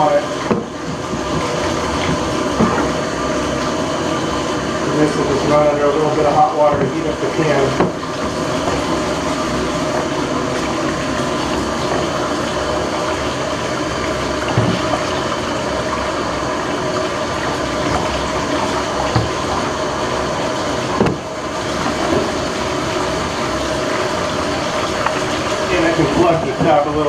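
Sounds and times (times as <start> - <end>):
water pouring from tap: 0.0 - 27.0.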